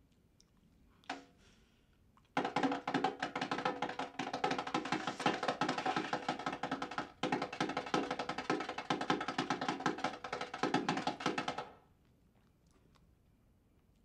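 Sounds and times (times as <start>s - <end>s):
fast percussive music: 2.4s - 11.8s.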